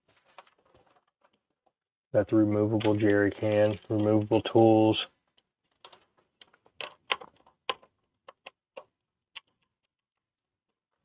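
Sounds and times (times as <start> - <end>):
plastic clicks and taps: 5.3 - 10.0.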